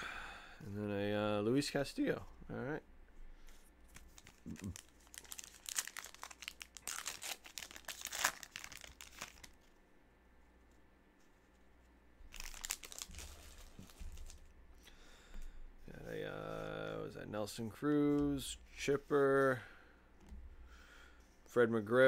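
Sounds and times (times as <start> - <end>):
foil wrapper crinkling and tearing: 3.9 - 9.6, 12.3 - 14.5.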